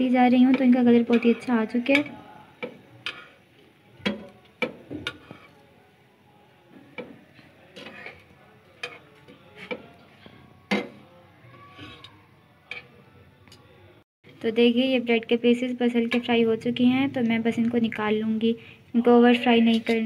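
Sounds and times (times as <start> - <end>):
metal tongs clicking on frying pan: 0.5 - 3.3.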